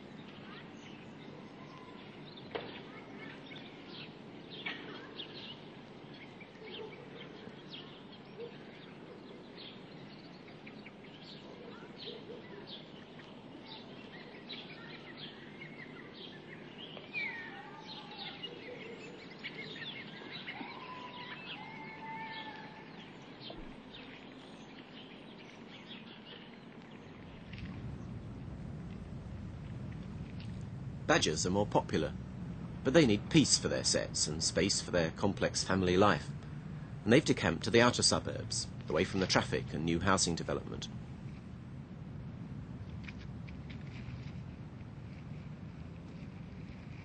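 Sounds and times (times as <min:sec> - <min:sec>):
birds chirping and calling: 0:00.0 - 0:28.2
outdoor background hiss: 0:00.0 - 0:47.0.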